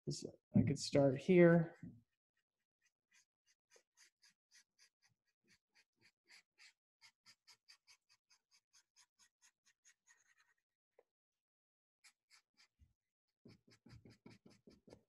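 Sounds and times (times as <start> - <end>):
marker scratching on paper: 3.1 - 10.6, 12.0 - 12.8, 13.5 - 15.0.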